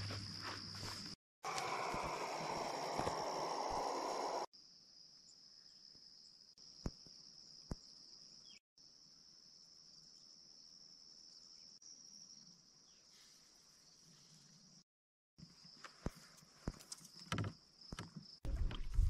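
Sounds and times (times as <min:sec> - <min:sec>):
crickets trilling: 0:00.0 - 0:04.5.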